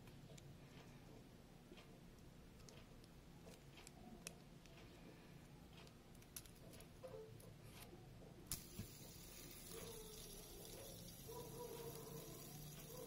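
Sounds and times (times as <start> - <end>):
fidget spinner whirring: 8.5 - 13.0
fingers clicking fidget spinner: 8.5 - 13.0.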